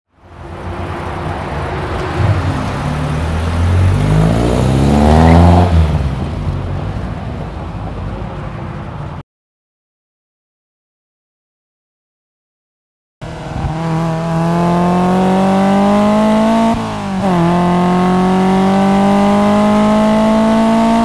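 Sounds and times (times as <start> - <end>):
car engine accelerating hard: 0.4 - 7.0, 13.2 - 21.0.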